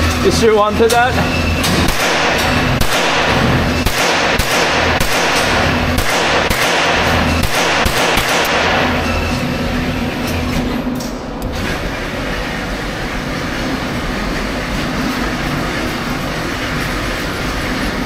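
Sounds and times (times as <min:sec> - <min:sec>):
rifle shots echoing indoors: 0:01.7 - 0:09.3.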